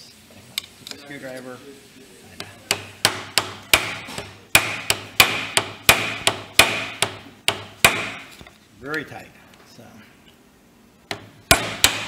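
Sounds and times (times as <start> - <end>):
mallet striking screwdriver: 2.7 - 8.4, 11.1 - 12.0.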